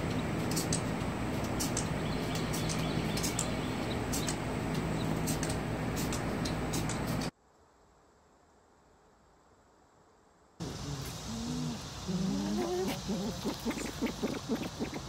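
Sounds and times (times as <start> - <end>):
sharp high-pitched clicks: 0.0 - 7.3
background hiss: 0.0 - 15.0
lemur alarm call: 10.6 - 15.0.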